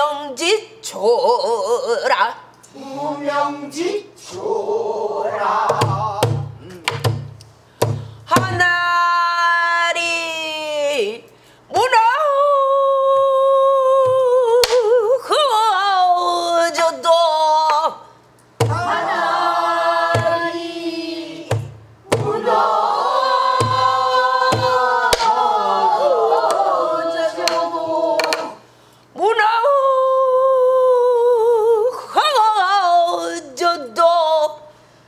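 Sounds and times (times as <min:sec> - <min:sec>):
several voices singing: 0:02.7 - 0:06.8, 0:18.6 - 0:28.7
barrel drum strokes: 0:20.0 - 0:20.6, 0:21.4 - 0:22.6, 0:23.4 - 0:25.2.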